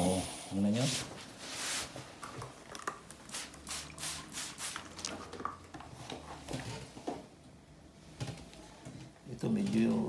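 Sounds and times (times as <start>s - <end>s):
spray bottle squirting: 3.2s - 5.1s.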